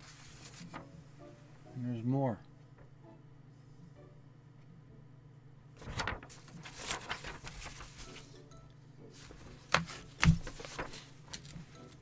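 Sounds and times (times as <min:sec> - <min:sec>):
paper rustling: 0:00.0 - 0:01.0, 0:05.8 - 0:08.4, 0:09.1 - 0:12.0.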